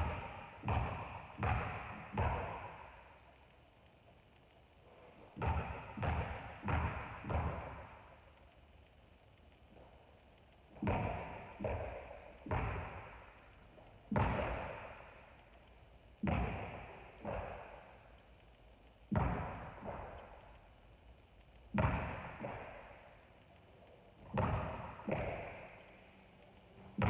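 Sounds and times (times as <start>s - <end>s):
basketball bouncing on wooden floor: 0.0s - 2.9s, 5.4s - 8.0s, 10.8s - 13.3s, 14.1s - 15.0s, 16.2s - 17.7s, 19.1s - 20.3s, 21.8s - 22.8s, 24.2s - 25.8s
basketball hitting hoop: 0.0s - 2.9s, 5.4s - 8.0s, 10.8s - 13.2s, 14.1s - 15.0s, 16.2s - 17.7s, 19.1s - 20.2s, 21.8s - 22.8s, 24.2s - 25.7s.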